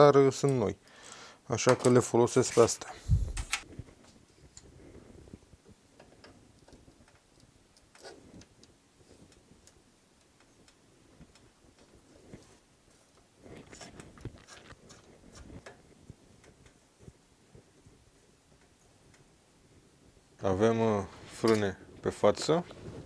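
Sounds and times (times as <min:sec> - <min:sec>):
faint clicks and metal taps: 0:05.5 - 0:15.8, 0:16.4 - 0:17.2, 0:18.5 - 0:19.3.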